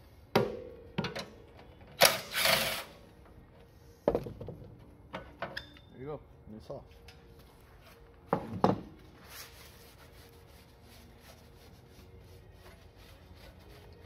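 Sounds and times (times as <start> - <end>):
cloth rag rubbing engine fan: 9.1 - 14.0.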